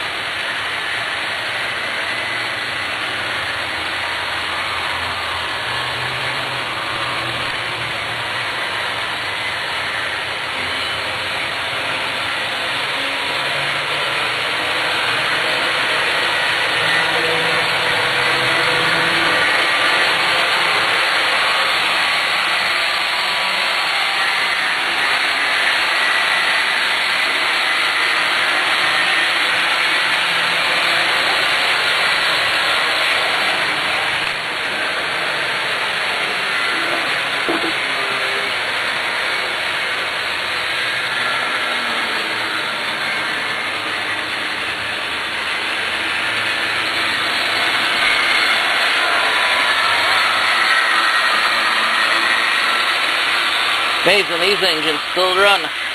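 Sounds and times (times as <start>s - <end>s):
model trains whirring: 0.0s - 55.9s.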